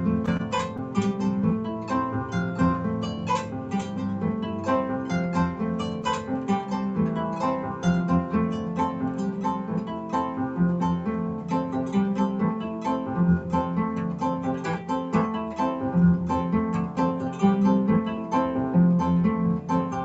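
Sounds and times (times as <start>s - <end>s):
harp-lute plucked notes: 0.0s - 20.0s.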